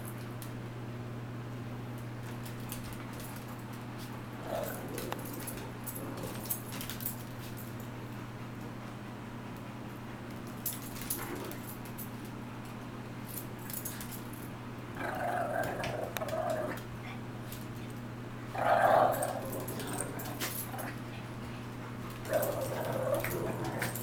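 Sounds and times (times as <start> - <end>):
small dogs growling: 4.4 - 6.7, 11.1 - 11.7, 14.9 - 17.2, 18.5 - 24.0.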